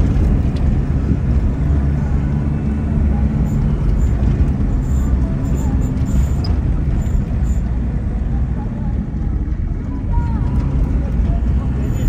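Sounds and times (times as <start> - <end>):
vehicle driving on dirt road: 0.0 - 12.0.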